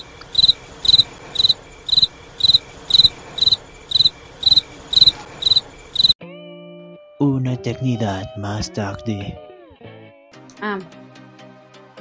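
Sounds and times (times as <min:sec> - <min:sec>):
cricket chirping: 0:00.0 - 0:06.2.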